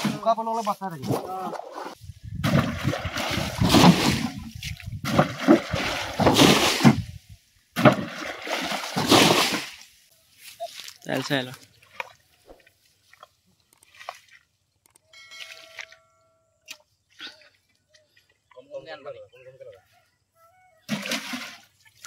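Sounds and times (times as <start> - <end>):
water splashing from scoop: 1.0 - 7.2, 7.8 - 9.9, 20.9 - 22.0.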